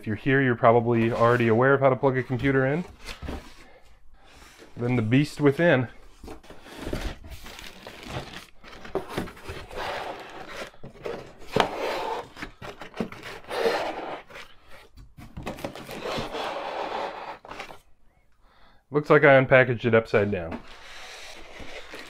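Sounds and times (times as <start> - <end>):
cardboard scraping and rubbing: 0.9 - 1.6, 6.2 - 17.9, 20.4 - 22.0.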